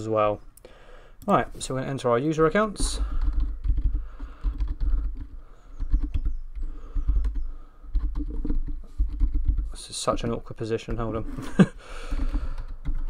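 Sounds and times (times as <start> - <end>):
keyboard typing: 2.8 - 10.3, 11.9 - 13.0.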